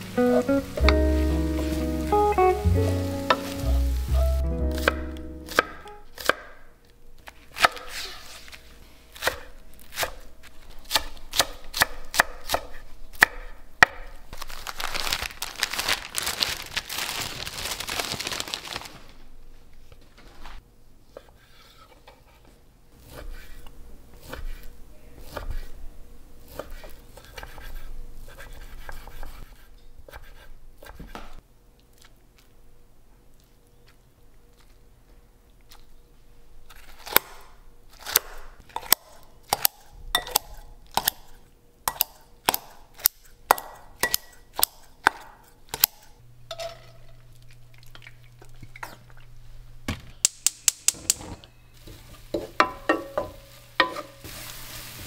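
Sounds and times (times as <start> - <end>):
knife chopping on wooden board: 4.7 - 6.5.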